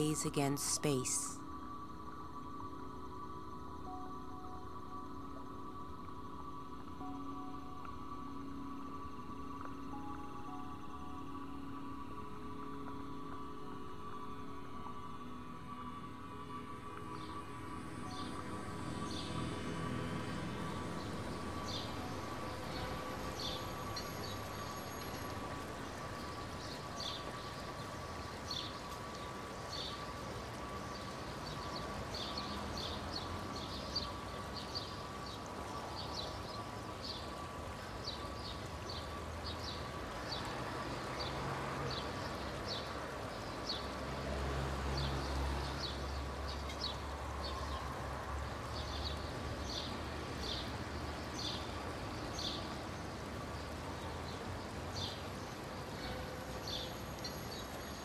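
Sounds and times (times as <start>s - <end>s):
faint steady hum: 0.0s - 32.6s
vehicle passing with low rumble: 16.6s - 27.8s, 39.9s - 52.9s.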